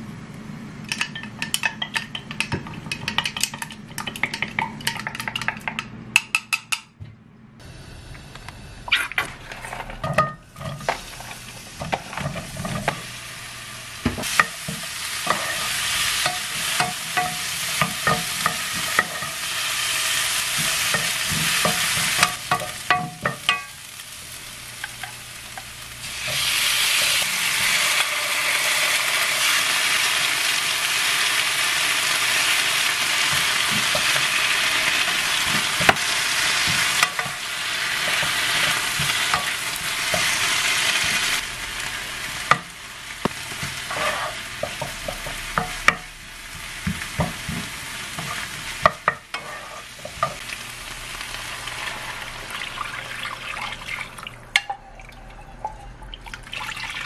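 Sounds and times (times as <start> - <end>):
onions sizzling in a frying pan: 10.1 - 53.8
wooden spoon scraping a pan: 14.3 - 19.4, 38.0 - 41.4, 43.5 - 45.7, 46.8 - 50.4.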